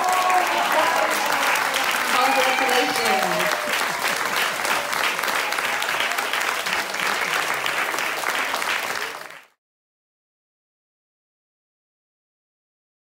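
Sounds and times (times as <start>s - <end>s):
audience clapping: 0.0s - 9.6s.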